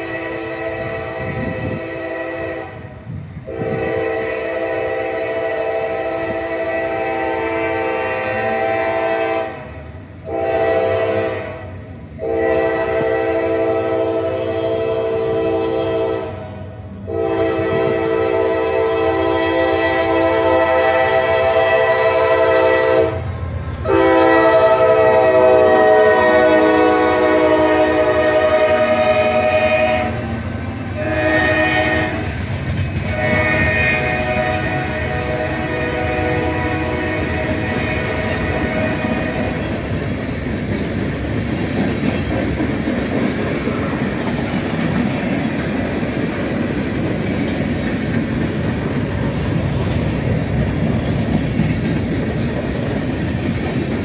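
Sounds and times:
locomotive air horn blasts: 0.0s - 32.4s, 33.0s - 39.8s
low train rumble: 0.0s - 54.0s.

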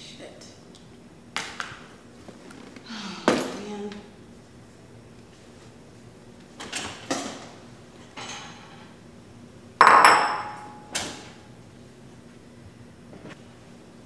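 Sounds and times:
dish clattering and ringing: 9.8s - 10.8s
kitchenware knocks and clunks: 9.8s - 10.8s.

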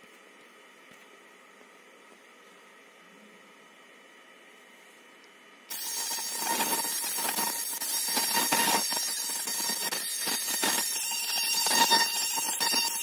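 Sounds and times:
high whine: 5.7s - 13.0s
laser cutter crackling hiss: 5.7s - 13.0s.

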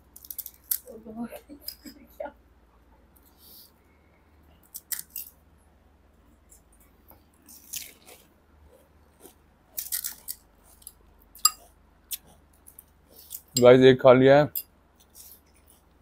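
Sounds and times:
crispy shells crunching: 0.0s - 0.9s, 4.6s - 5.4s, 7.4s - 8.3s, 9.1s - 13.5s.

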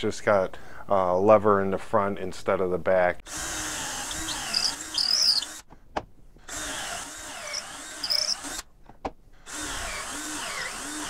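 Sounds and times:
power drill boring into wood: 3.3s - 5.7s, 6.5s - 8.7s, 9.4s - 11.0s.

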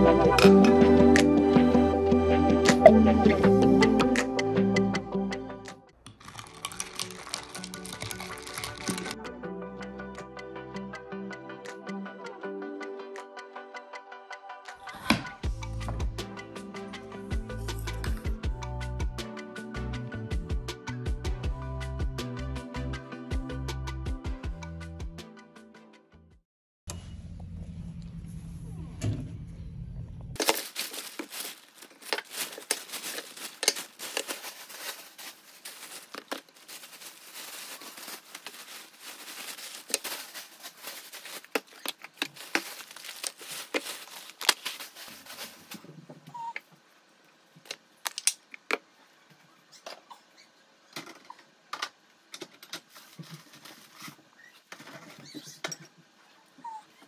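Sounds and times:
packaging crinkling and tearing: 6.1s - 9.2s, 30.4s - 45.9s
packaging rustles and taps: 6.1s - 9.2s, 30.4s - 45.9s.

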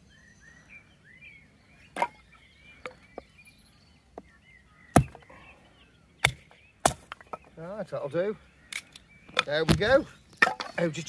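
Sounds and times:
hatchet chopping wood: 4.9s - 5.2s, 6.2s - 7.5s.

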